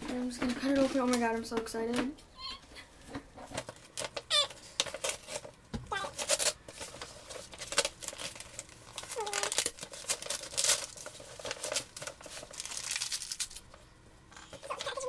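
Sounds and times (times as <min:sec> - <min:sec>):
package wrapping crinkling and tearing: 0:03.6 - 0:13.8.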